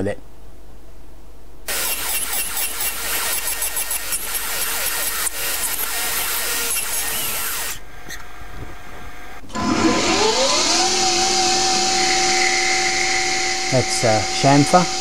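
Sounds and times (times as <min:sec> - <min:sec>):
lathe spindle whine: 0:01.7 - 0:07.8, 0:08.8 - 0:15.0
tool cutting brass hiss: 0:01.7 - 0:07.8.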